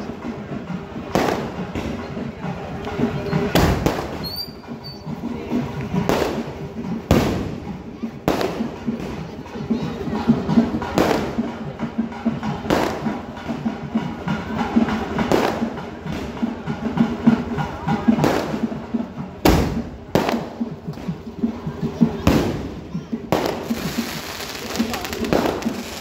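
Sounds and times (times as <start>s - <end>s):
firecrackers crackling: 0.0s - 26.0s
firework bangs: 1.0s - 2.0s, 3.4s - 4.6s, 6.0s - 9.2s, 12.6s - 13.6s, 14.8s - 16.2s, 19.4s - 21.1s, 22.2s - 26.0s.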